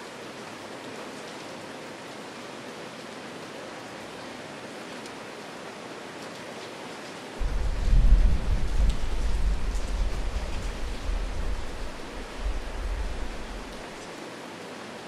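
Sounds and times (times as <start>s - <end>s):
deep rumble: 7.4s - 13.9s
steady hiss: 7.4s - 14.1s.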